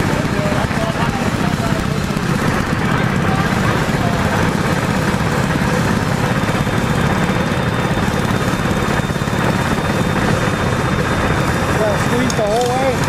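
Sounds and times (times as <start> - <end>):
small motorbike engine putter: 12.0 - 13.0.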